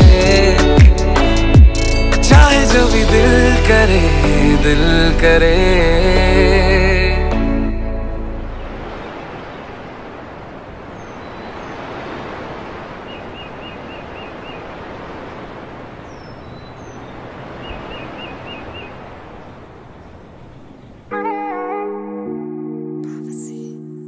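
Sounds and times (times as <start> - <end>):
flowing water rushing: 8.4 - 21.2
bird chirps: 10.9 - 12.0, 13.0 - 14.7, 16.0 - 21.1, 23.1 - 23.9.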